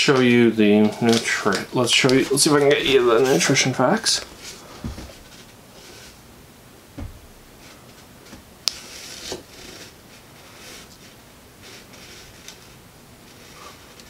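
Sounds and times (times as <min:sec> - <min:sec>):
plastic wrapper crinkling: 0:00.0 - 0:05.6
soft thuds: 0:04.7 - 0:05.4, 0:06.9 - 0:07.6.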